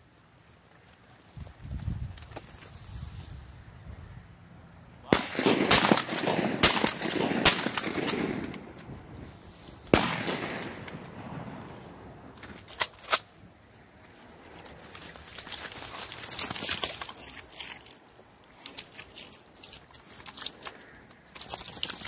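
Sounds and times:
shotgun shots: 5.1 - 8.8, 9.9 - 11.8.

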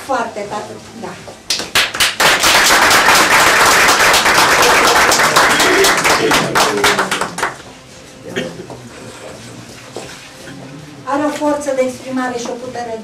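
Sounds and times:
small group applauding: 1.5 - 7.8.

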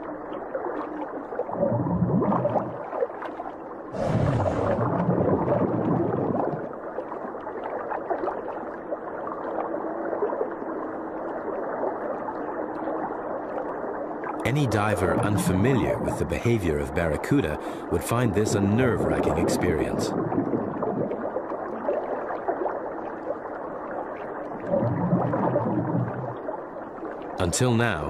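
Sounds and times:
muffled underwater gurgling: 0.0 - 3.2, 3.8 - 8.8, 9.7 - 28.0
rush of bubbles: 0.6 - 10.5, 19.1 - 23.5, 24.1 - 27.2.

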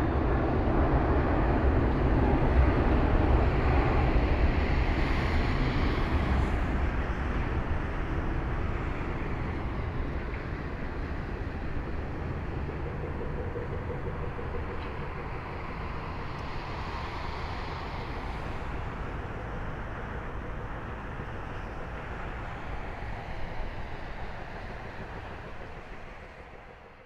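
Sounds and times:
jet engines rumbling: 0.0 - 27.0.

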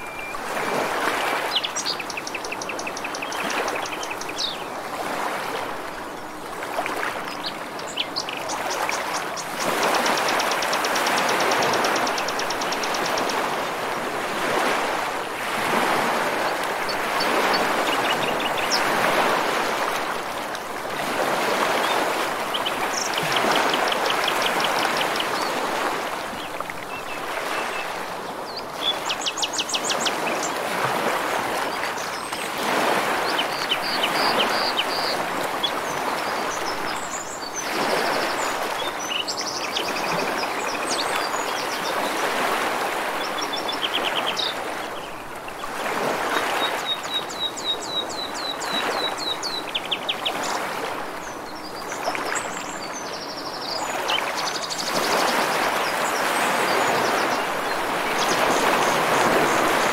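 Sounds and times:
ocean waves washing ashore: 0.0 - 59.9
small birds singing: 1.4 - 4.8, 7.2 - 13.4, 21.8 - 25.6, 26.4 - 30.6, 33.2 - 42.2, 43.2 - 45.6, 46.6 - 50.6, 51.2 - 59.9.

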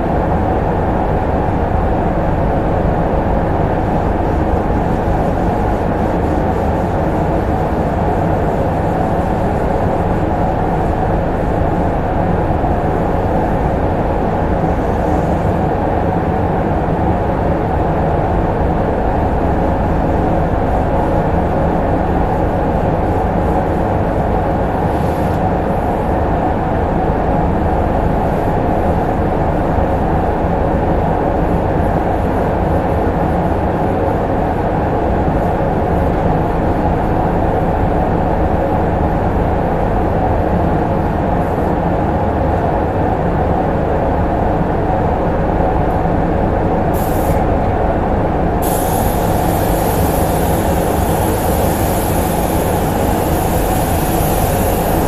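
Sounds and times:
ventilation fans droning: 0.0 - 55.0
compressed air hiss: 24.8 - 25.5, 46.9 - 47.6, 48.6 - 55.0
spray gun hissing: 46.9 - 47.5, 48.6 - 55.0.

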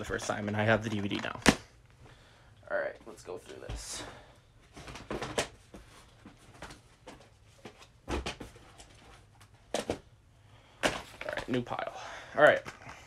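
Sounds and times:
plastic cases clattering: 4.7 - 5.7.

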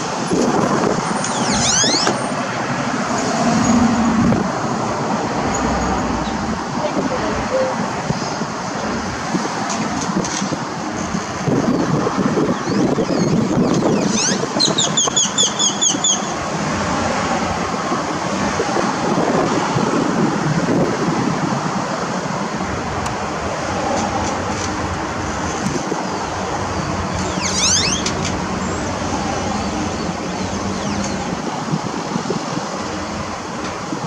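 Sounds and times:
roadside traffic: 0.0 - 34.0
short high chirps: 7.1 - 7.8.

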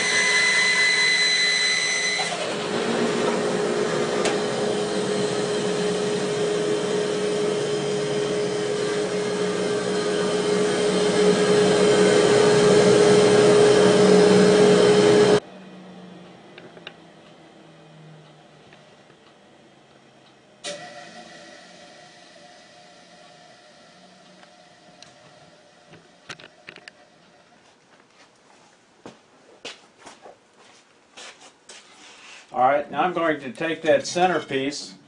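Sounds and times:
bandsaw running: 0.0 - 15.4
high whine: 0.0 - 27.6.

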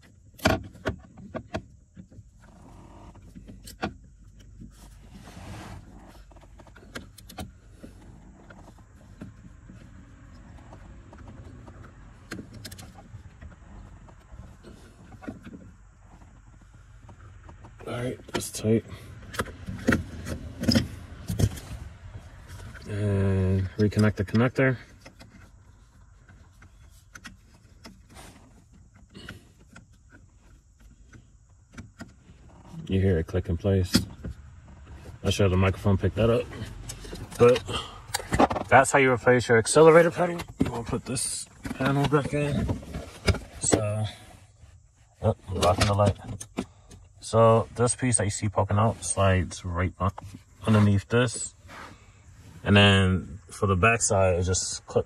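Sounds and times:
scraping rustle: 4.5 - 17.8.

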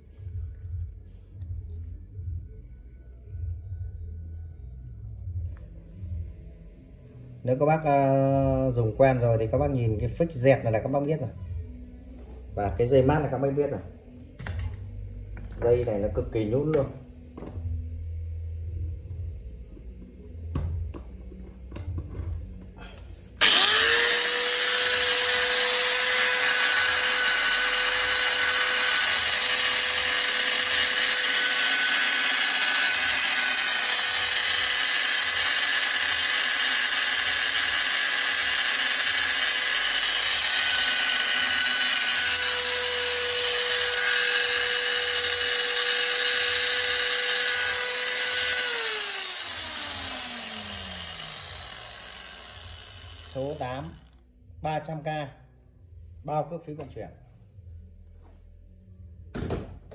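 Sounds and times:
angle grinder whining: 23.4 - 54.2.

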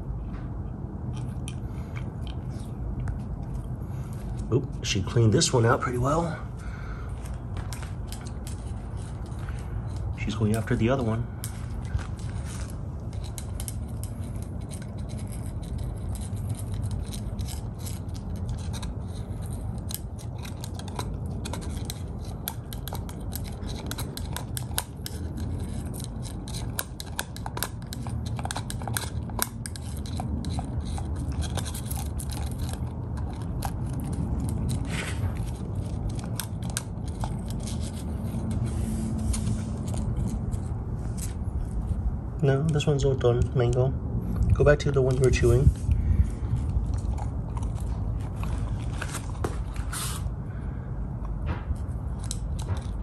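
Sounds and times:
puppy gnawing a bone: 0.0 - 53.0
low rumble: 30.2 - 53.0.

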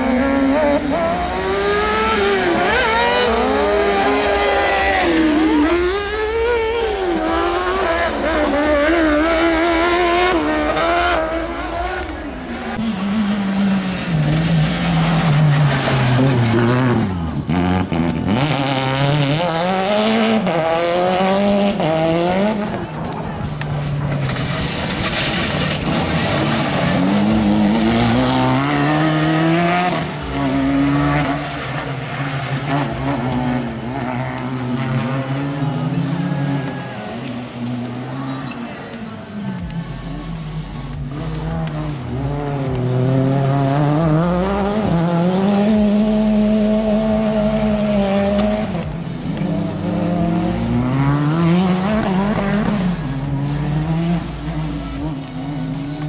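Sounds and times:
race car engines revving: 0.0 - 56.0
tyres squealing on dirt: 2.9 - 19.9.

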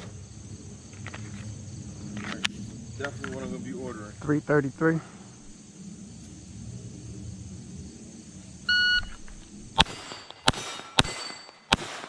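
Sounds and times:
low rumble: 5.2 - 10.1.

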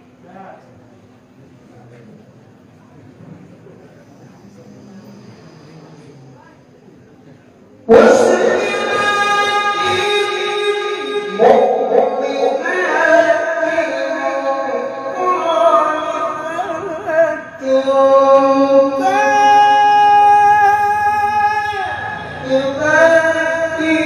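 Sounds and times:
man chanting melodically into microphone: 7.9 - 24.0.

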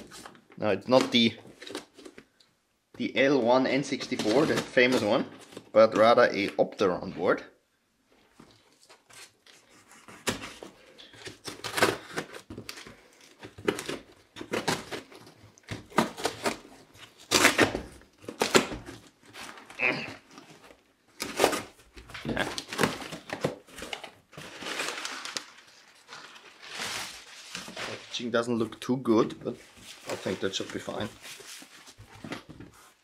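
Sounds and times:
tape tearing: 3.9 - 5.7, 8.8 - 28.2
cardboard flaps rustling: 8.5 - 33.0.

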